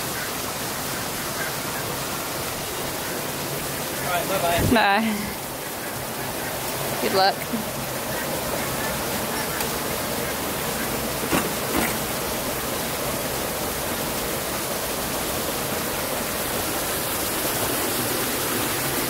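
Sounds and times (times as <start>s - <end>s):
steady rushing hiss: 0.0s - 19.0s.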